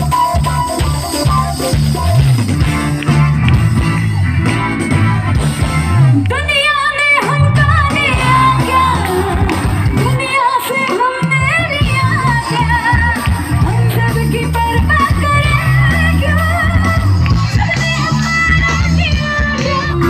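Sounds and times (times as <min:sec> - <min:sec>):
live band music: 0:00.0 - 0:20.0
woman singing: 0:06.3 - 0:20.0.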